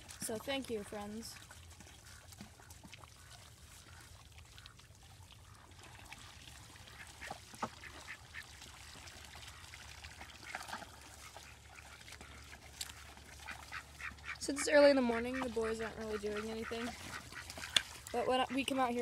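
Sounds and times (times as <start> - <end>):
ducks quacking softly: 10.4 - 19.0.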